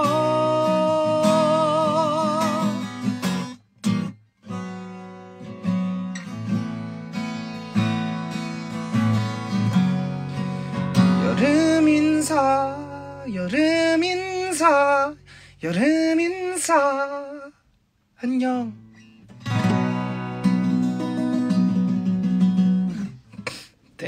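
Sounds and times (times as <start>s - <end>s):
man singing with vibrato: 0.0s - 3.3s, 11.0s - 17.6s, 18.2s - 18.9s
acoustic guitar strumming: 0.0s - 17.4s, 18.7s - 23.6s.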